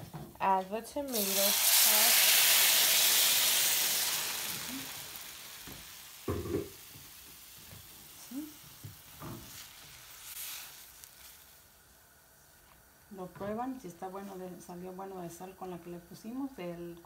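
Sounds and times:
sauce sizzling in a hot pan: 1.1s - 13.2s.

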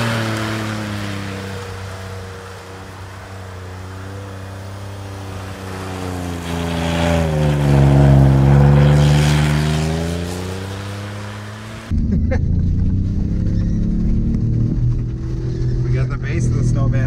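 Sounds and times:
wheels throwing snow spray: 0.0s - 11.9s
truck engine running hard: 0.0s - 17.0s.

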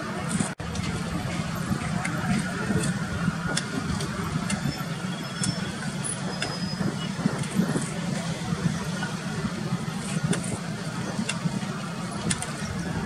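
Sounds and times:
low engine rumble: 0.0s - 13.0s.

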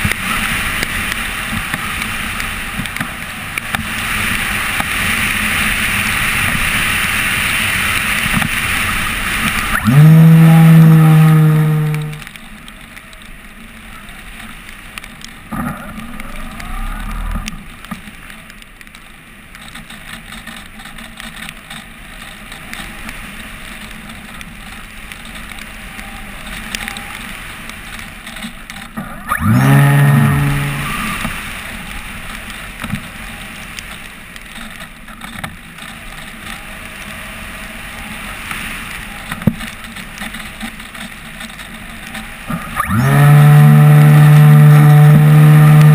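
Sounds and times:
propeller motor hum: 9.7s - 12.3s, 29.2s - 31.3s, 42.5s - 45.9s.

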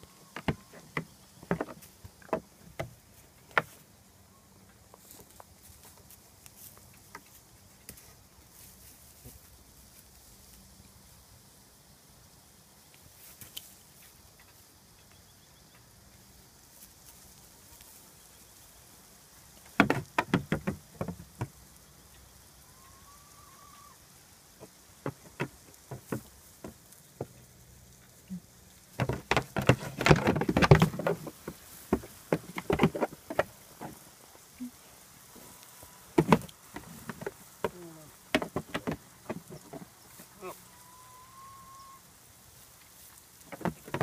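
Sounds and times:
goat hooves clattering: 0.0s - 3.8s, 19.6s - 21.6s, 24.6s - 27.5s, 28.8s - 34.5s, 36.0s - 40.4s, 43.0s - 44.0s.

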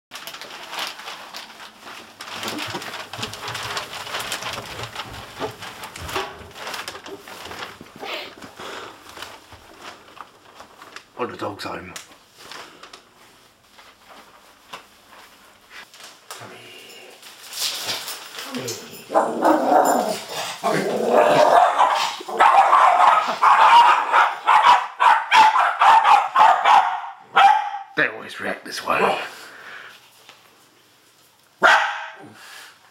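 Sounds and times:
plastic bag rustling: 0.1s - 16.4s, 17.0s - 25.1s
dogs barking: 19.1s - 28.0s, 31.6s - 32.2s.

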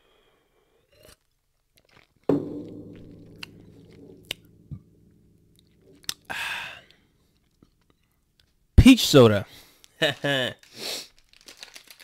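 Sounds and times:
low ringing: 2.3s - 7.8s.

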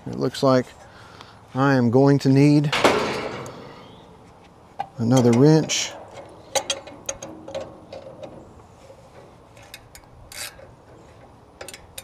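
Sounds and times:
metallic clicks and scraping: 2.7s - 12.0s.

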